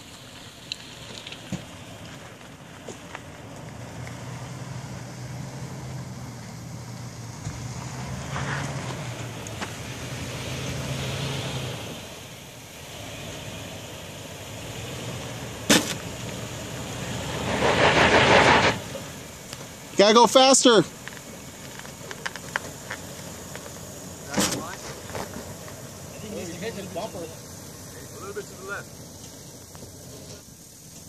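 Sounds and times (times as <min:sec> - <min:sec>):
tyres scrabbling on dirt and rock: 0:00.0 - 0:04.5, 0:15.0 - 0:31.0
engine running at low revs: 0:00.0 - 0:31.0
engine revving: 0:03.2 - 0:31.0.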